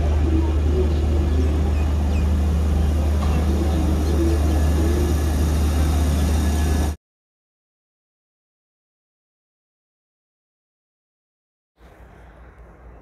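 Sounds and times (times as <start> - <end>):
faint voices: 0.0 - 6.9
electric train hum: 0.0 - 7.0, 11.8 - 13.0.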